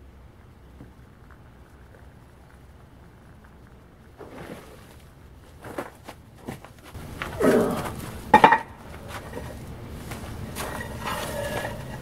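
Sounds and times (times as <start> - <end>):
quench water bubbling and splashing: 0.4 - 5.5.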